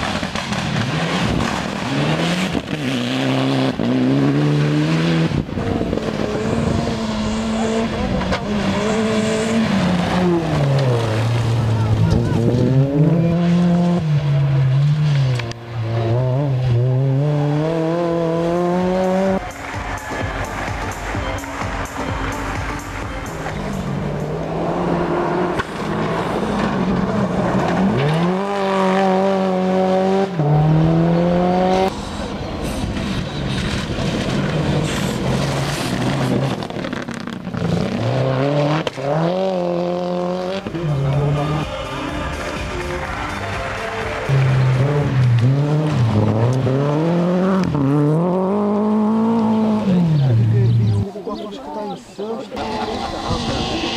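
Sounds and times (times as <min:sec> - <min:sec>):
rally car engine revving: 0:00.0 - 0:51.5
gravel crunching under tyres: 0:30.9 - 0:39.4
quieter mixed sound: 0:52.5 - 0:53.9.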